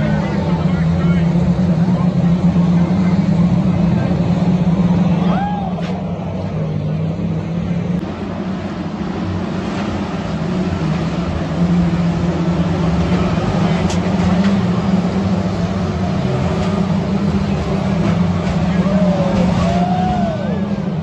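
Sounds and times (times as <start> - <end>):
stock car engines running: 0.0 - 21.0
tyre and track noise: 7.3 - 20.6.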